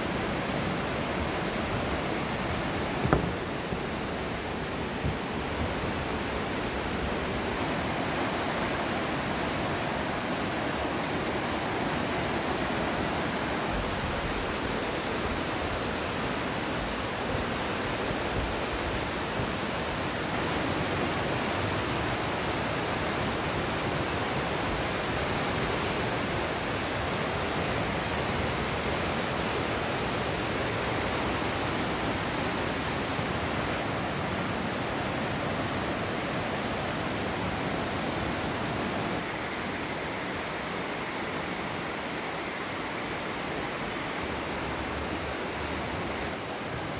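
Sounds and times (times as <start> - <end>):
river rushing through rocks: 0.0 - 46.9.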